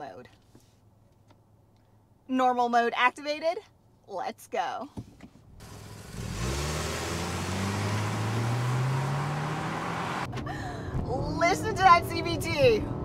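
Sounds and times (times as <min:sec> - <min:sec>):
car engine accelerating: 0:05.6 - 0:10.6.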